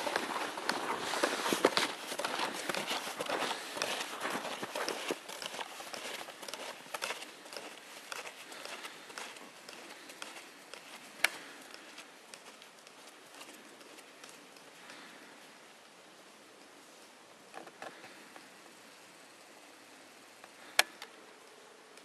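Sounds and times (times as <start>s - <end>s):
footsteps crunching in snow: 0.0s - 15.6s.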